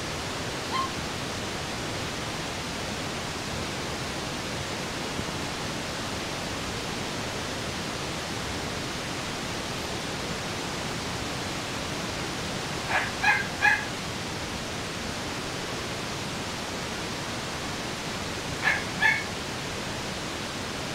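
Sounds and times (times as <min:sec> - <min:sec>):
puppy yipping: 0:00.7 - 0:01.0, 0:12.9 - 0:13.9, 0:18.6 - 0:19.3.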